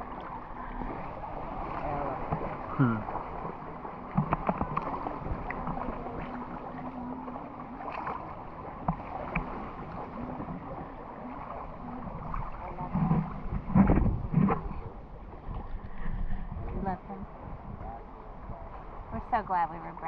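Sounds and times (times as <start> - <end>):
small splashes: 0.0 - 14.8
muffled water sloshing: 0.0 - 20.0.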